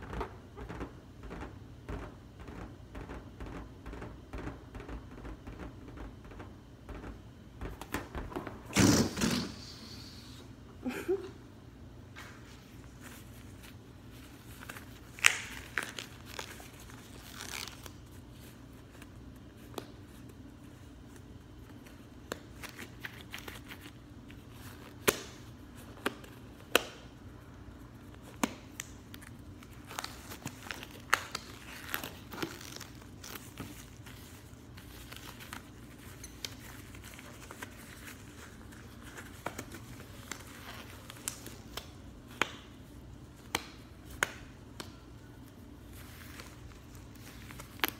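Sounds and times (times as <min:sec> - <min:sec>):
latex gloves crinkling and snapping: 0:12.8 - 0:27.1, 0:27.8 - 0:47.9.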